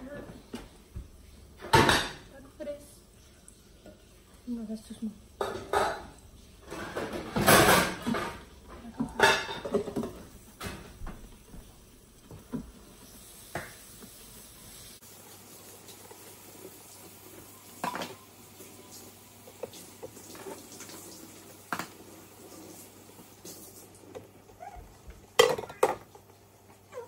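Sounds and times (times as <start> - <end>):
kitchen knocks and clinks: 1.6 - 2.3, 5.4 - 11.2, 17.8 - 18.2, 25.3 - 26.2.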